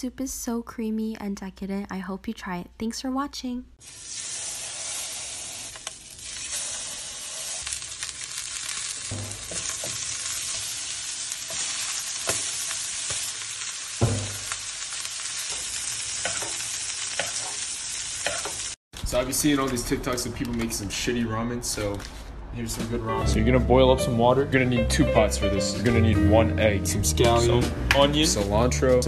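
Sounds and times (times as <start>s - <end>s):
steak sizzling in a frying pan: 3.8s - 18.8s
tongs and spoon knocking a pan: 9.0s - 10.1s, 11.5s - 13.3s, 13.9s - 14.6s, 15.5s - 17.6s.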